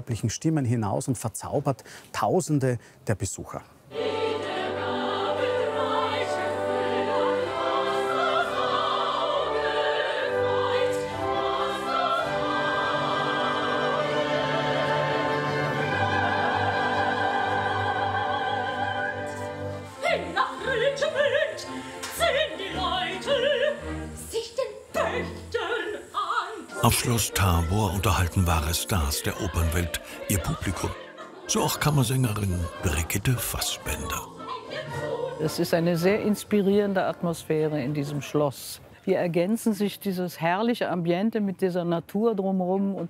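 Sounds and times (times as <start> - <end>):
opera singers with vibrato: 3.9 - 37.0
orchestra: 3.9 - 38.4.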